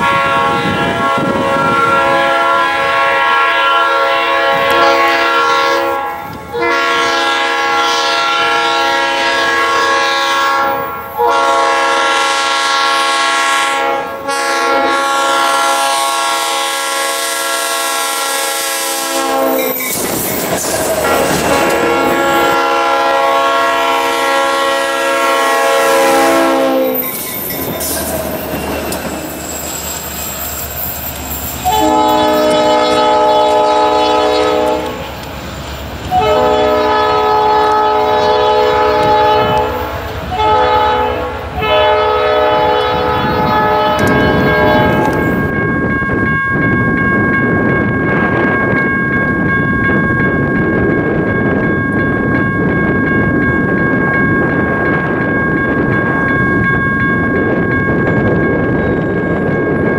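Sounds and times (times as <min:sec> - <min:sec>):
locomotive horn blasts: 0:00.0 - 0:19.7, 0:21.0 - 0:27.0, 0:31.6 - 0:35.1, 0:36.1 - 0:45.2
train rumbling on rails: 0:00.0 - 0:59.9.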